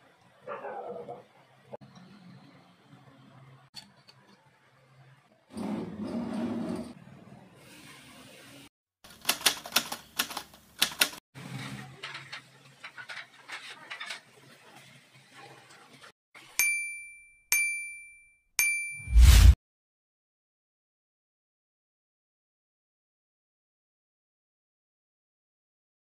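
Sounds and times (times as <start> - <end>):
sharp rapid clicks: 9.1 - 11.2.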